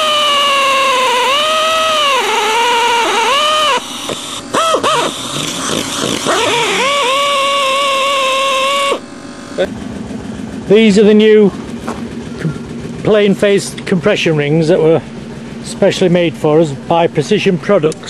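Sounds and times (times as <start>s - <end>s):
electric drill whining: 0.0s - 9.7s.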